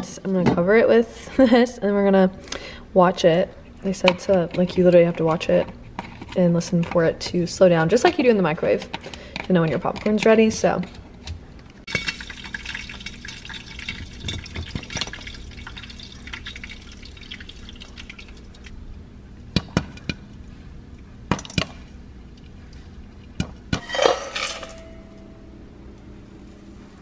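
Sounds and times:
oil sizzling: 11.8s - 18.9s
popcorn popping: 11.9s - 18.3s
metal pot clattering against bowl: 23.8s - 25.1s.

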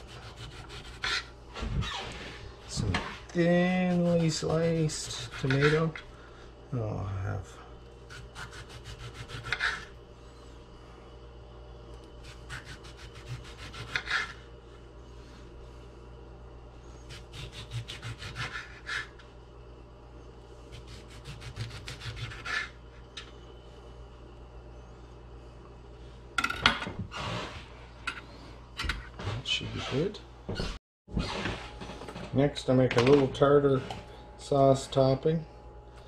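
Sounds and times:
knife sawing through tomato: 0.0s - 1.3s, 3.6s - 6.0s, 8.1s - 9.9s, 12.2s - 14.4s, 17.1s - 19.2s, 20.7s - 22.8s.

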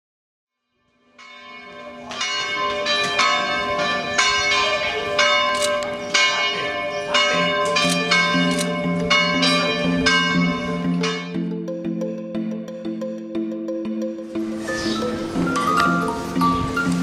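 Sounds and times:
church bells ringing: 1.0s - 11.6s, 14.5s - 17.0s.

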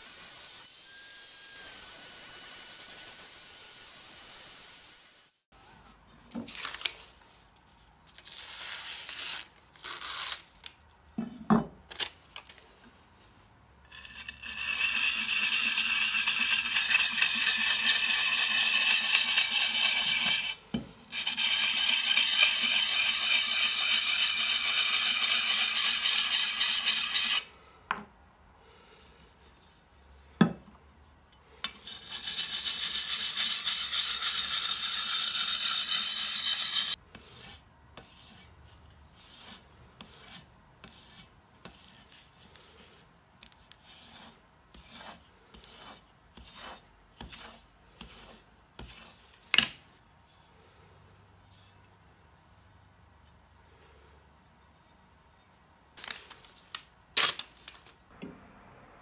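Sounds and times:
sharpening stone rasping on cleaver: 13.9s - 27.5s, 31.7s - 37.0s.

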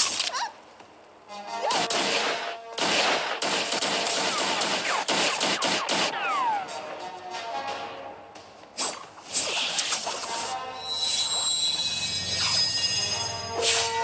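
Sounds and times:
sharp hits or shots: 1.8s - 7.0s
background music: 5.6s - 8.6s
falling whistle-like tones: 10.8s - 14.0s.

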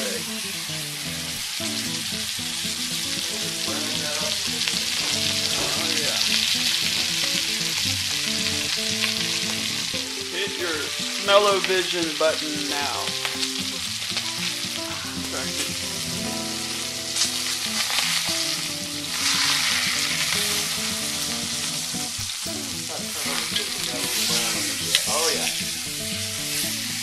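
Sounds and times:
meat sizzling in hot oil: 0.0s - 27.0s.

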